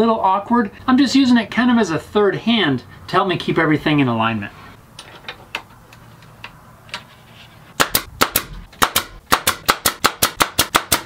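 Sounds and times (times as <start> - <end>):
pin nailer sharp pops: 7.8 - 11.0.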